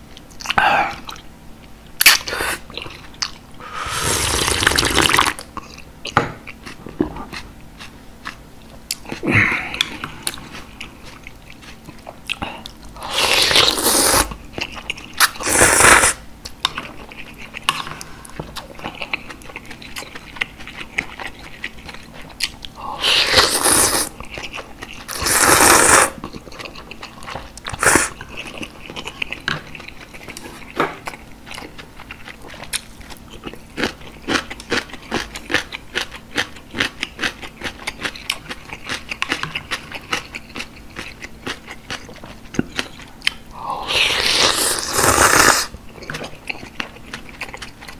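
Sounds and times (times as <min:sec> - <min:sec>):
wet chewing with mouth clicks: 0:00.1 - 0:03.4, 0:04.2 - 0:15.6, 0:16.4 - 0:47.9
slurping noodles and broth: 0:03.6 - 0:05.4, 0:13.0 - 0:14.3, 0:15.2 - 0:16.2, 0:22.9 - 0:24.2, 0:25.0 - 0:26.2, 0:27.7 - 0:28.2, 0:43.8 - 0:45.8.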